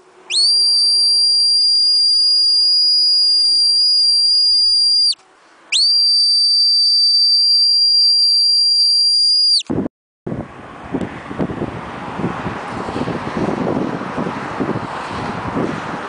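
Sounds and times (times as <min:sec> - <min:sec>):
whistle blasts: 0:00.3 - 0:09.7
wind buffeting microphone: 0:09.7 - 0:16.0.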